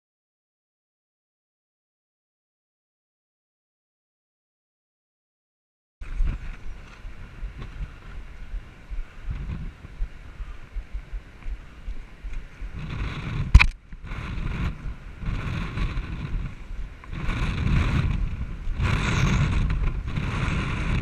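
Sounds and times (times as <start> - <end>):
wind buffeting microphone: 6.0 - 21.0.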